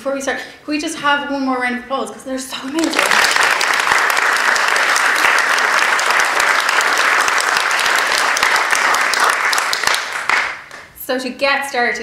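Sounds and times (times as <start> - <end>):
audience applauding: 2.8 - 10.9.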